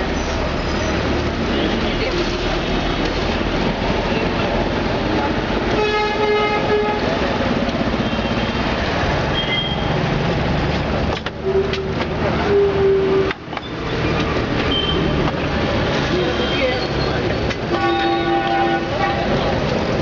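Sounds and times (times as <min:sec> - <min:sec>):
busy road traffic: 0:00.0 - 0:20.0
vehicle horns honking: 0:05.7 - 0:07.2, 0:11.4 - 0:13.3, 0:16.2 - 0:19.4.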